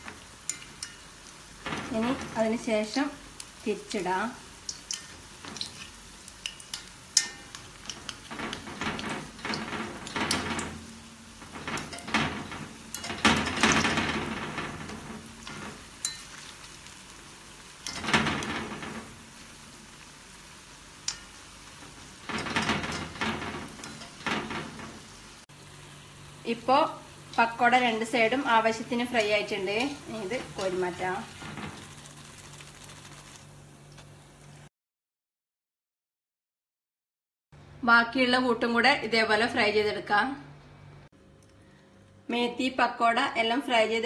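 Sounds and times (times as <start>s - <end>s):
fritters sizzling in hot oil: 0.0s - 34.0s
spoon clinking against pan: 16.0s - 16.4s.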